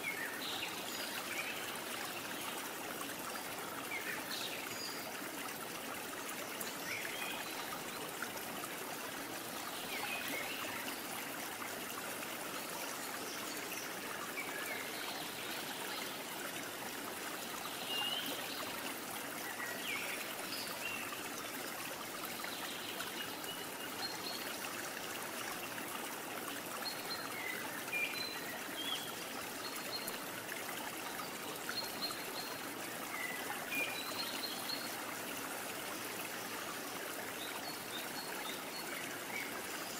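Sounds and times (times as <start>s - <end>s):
running stream water: 0.0s - 39.9s.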